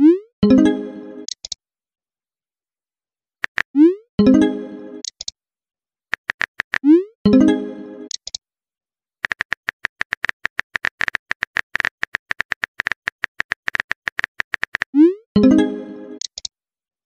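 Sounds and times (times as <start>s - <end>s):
phone keyboard typing clicks: 3.4s - 3.8s, 5.0s - 5.3s, 6.1s - 6.9s, 8.1s - 8.4s, 9.2s - 15.0s, 16.2s - 16.5s.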